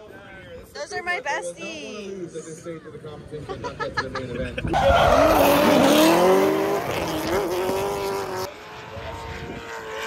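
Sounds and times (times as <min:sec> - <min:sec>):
car engine revving: 0:04.8 - 0:10.0.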